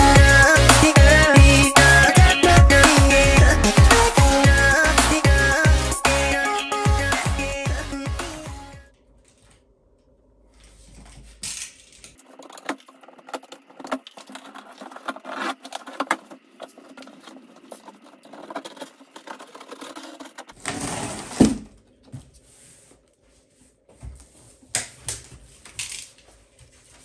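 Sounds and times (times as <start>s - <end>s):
clicks and scrapes: 10.9s - 21.4s
cardboard and plastic wrap rustling: 12.1s - 23.1s.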